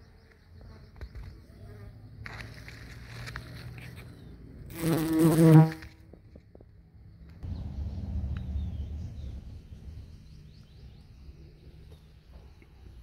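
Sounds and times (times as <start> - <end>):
bee buzzing: 4.7 - 6.0
low rumble: 7.4 - 11.3.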